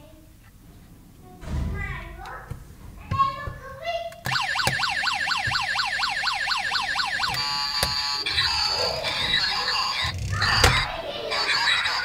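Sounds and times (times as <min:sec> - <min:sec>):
toy switch click: 0:04.1 - 0:04.9, 0:06.7 - 0:08.1
toy electronic siren yelp: 0:04.3 - 0:12.0.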